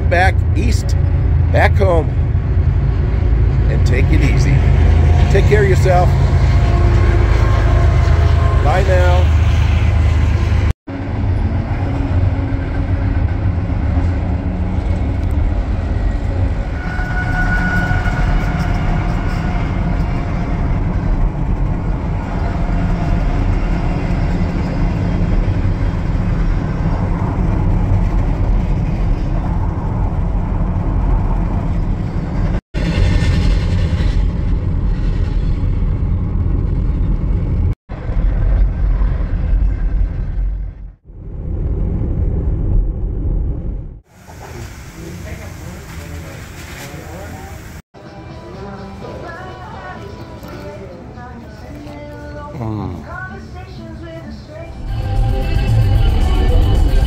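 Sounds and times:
freight train wheels rumbling: 0:00.0 - 0:47.8, 0:53.3 - 0:57.0
faint high squeal: 0:16.6 - 0:20.0.

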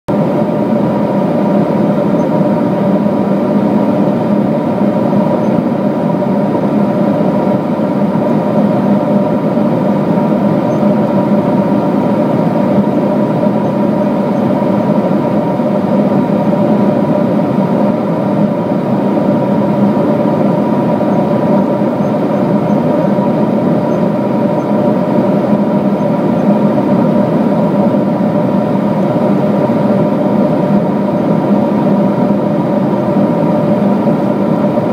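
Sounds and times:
airplane cabin engine hum: 0:00.1 - 0:34.9.

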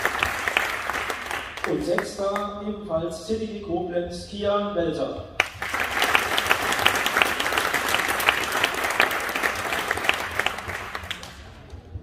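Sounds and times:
audience applauding: 0:00.0 - 0:02.5, 0:05.4 - 0:11.7.

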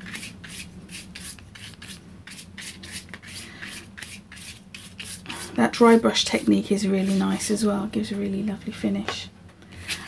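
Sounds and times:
paintbrush scratching on card: 0:00.0 - 0:05.5, 0:07.0 - 0:07.5.

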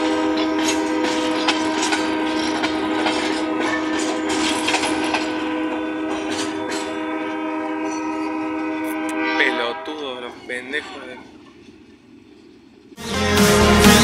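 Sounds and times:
wheel clicks over rail joints: 0:00.0 - 0:07.1
freight train rolling past: 0:00.0 - 0:14.0.

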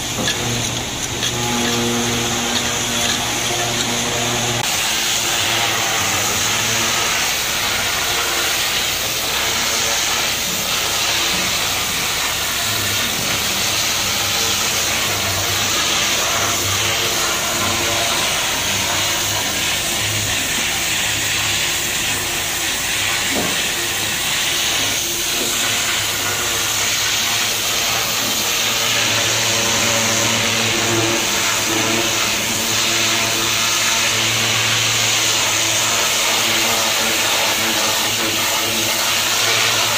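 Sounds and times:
high-pressure water spray hissing: 0:00.0 - 0:39.9
machine droning: 0:00.0 - 0:39.9.

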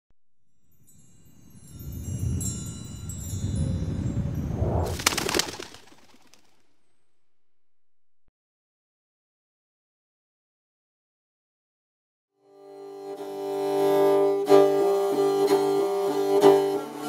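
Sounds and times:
high chime-like tones: 0:00.5 - 0:04.9
low rumble: 0:01.2 - 0:08.3.

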